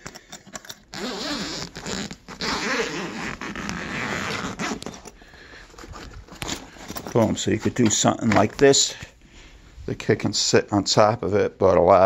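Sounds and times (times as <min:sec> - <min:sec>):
zipper being pulled open: 0:00.6 - 0:05.2.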